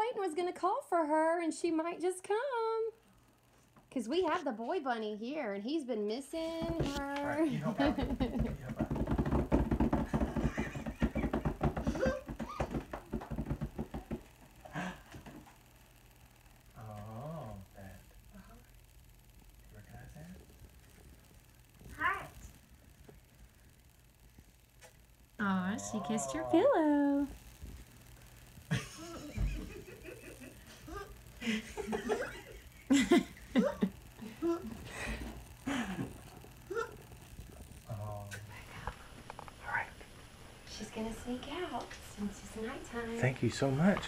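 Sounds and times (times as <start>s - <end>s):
people laughing: 7.4s - 8.7s, 10.3s - 12.3s, 28.7s - 37.0s.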